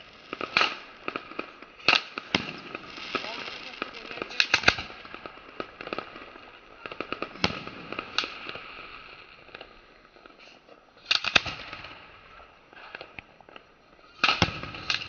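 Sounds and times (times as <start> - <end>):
fireworks bangs: 0.0 - 15.0
fireworks crackling: 0.0 - 15.0.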